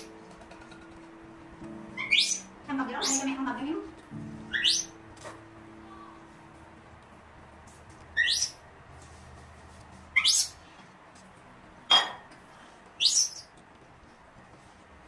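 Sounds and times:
high-pitched rising animal calls: 0:04.4 - 0:05.0.

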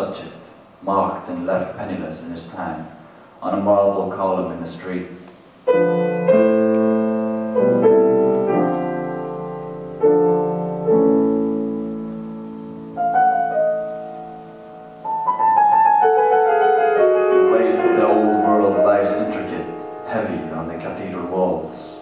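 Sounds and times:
grand piano playing chords: 0:05.6 - 0:22.0.

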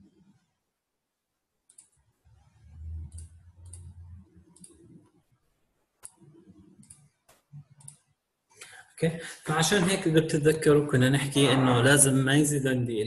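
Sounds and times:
computer mouse clicks: 0:01.7 - 0:02.0, 0:02.8 - 0:05.0, 0:06.0 - 0:08.1.

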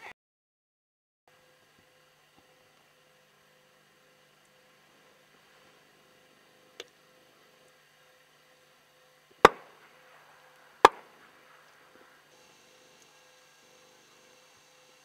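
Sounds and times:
shotgun shots with echo: 0:09.4 - 0:12.2.

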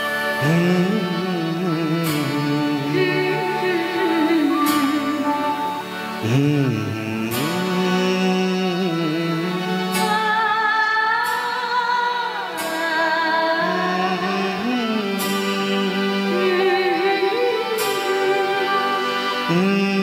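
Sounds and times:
man singing: 0:00.0 - 0:10.6, 0:12.6 - 0:20.0
harmonium chords: 0:00.0 - 0:20.0.

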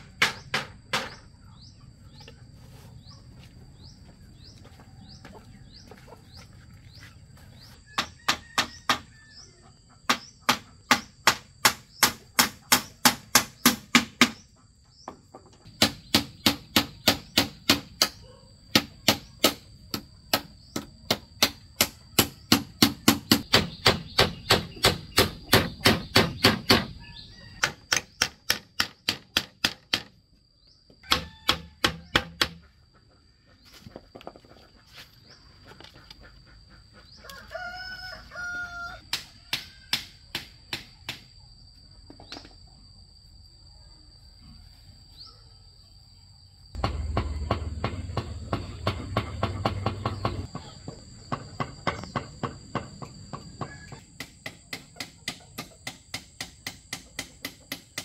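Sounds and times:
hammer striking bamboo: 0:00.0 - 0:01.3, 0:07.9 - 0:09.1, 0:10.1 - 0:14.4, 0:15.7 - 0:26.9, 0:27.6 - 0:30.2, 0:31.0 - 0:32.7, 0:39.1 - 0:41.3, 0:46.8 - 0:58.0.

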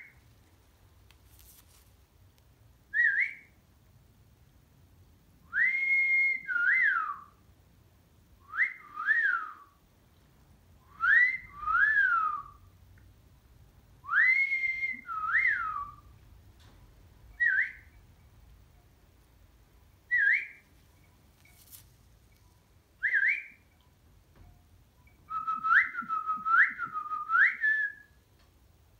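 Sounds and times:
whistled tune: 0:03.0 - 0:03.6, 0:05.5 - 0:07.3, 0:08.5 - 0:09.7, 0:10.9 - 0:12.6, 0:14.1 - 0:16.1, 0:17.3 - 0:18.0, 0:20.1 - 0:21.6, 0:23.0 - 0:23.8, 0:25.0 - 0:28.2.

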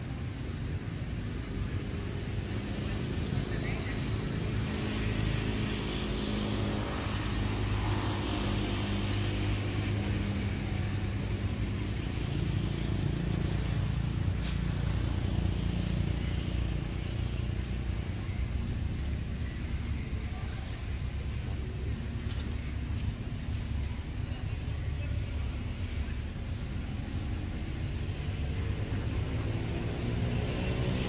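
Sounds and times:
vehicle engine running: 0:00.0 - 0:31.0.

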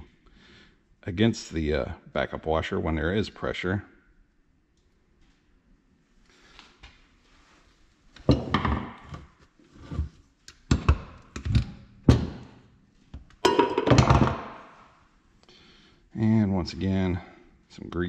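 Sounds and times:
metal parts knocking on workbench: 0:13.4 - 0:14.5.

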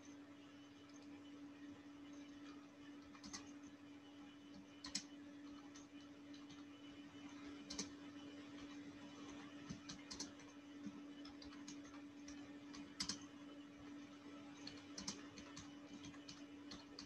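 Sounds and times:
steady electrical hum: 0:00.0 - 0:17.0
faint keyboard clicks: 0:02.4 - 0:03.7, 0:04.5 - 0:06.7, 0:07.6 - 0:08.0, 0:08.6 - 0:13.3, 0:14.6 - 0:17.0.

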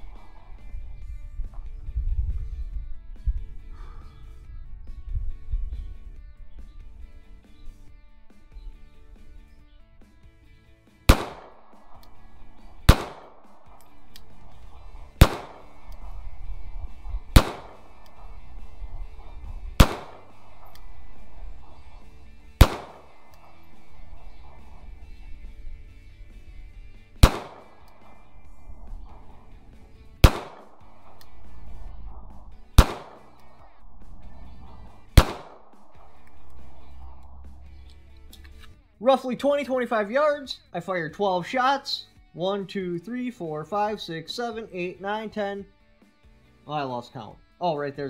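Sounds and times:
pistol shots with echo: 0:00.0 - 0:01.7, 0:11.1 - 0:38.0
background music: 0:00.0 - 0:48.0.

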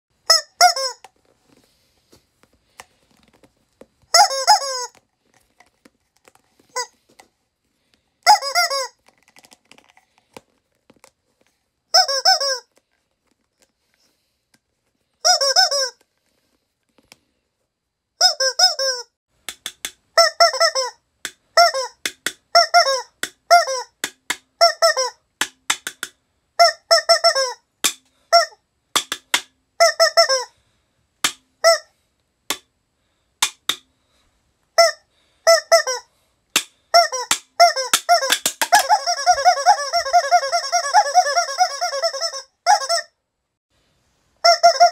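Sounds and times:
rubber chicken toy squealing: 0:00.3 - 0:01.1, 0:04.1 - 0:05.0, 0:08.2 - 0:09.1, 0:11.9 - 0:12.8, 0:15.2 - 0:16.0, 0:18.2 - 0:19.2, 0:20.2 - 0:25.3, 0:26.6 - 0:30.5, 0:31.3 - 0:32.0, 0:34.8 - 0:43.2, 0:44.4 - 0:44.9.

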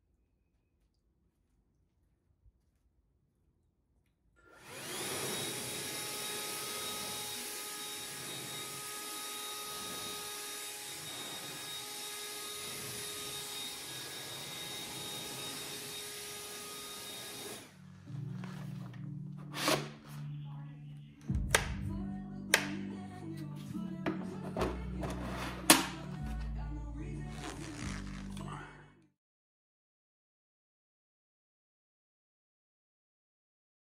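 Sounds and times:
leaf blower whining: 0:04.4 - 0:18.4.

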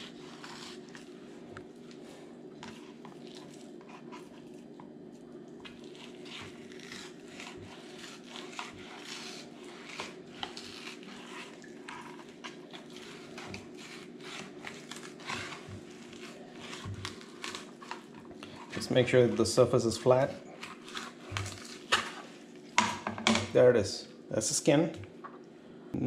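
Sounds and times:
knife scraping plastic cutting board: 0:00.0 - 0:01.2, 0:05.6 - 0:22.4
steady low hum: 0:00.0 - 0:26.0.

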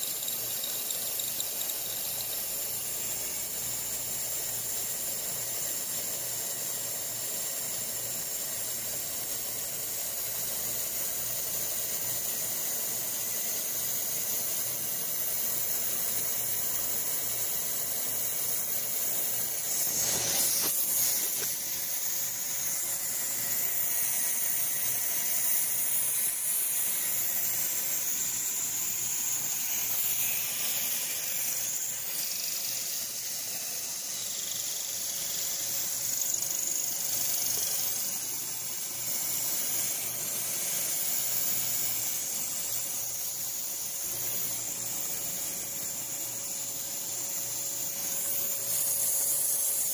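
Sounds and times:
mist coolant spraying hiss: 0:00.0 - 0:49.9
milling machine cutting plastic: 0:15.5 - 0:47.2.

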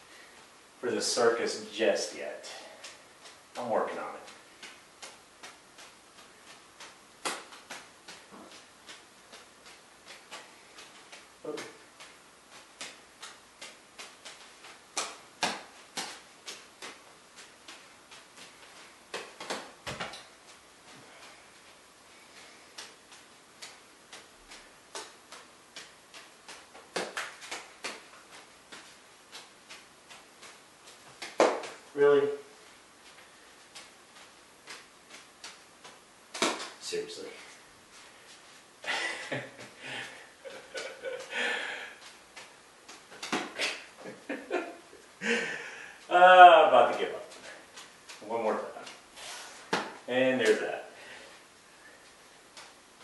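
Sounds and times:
juggling balls slapping into hands: 0:02.0 - 0:53.0.

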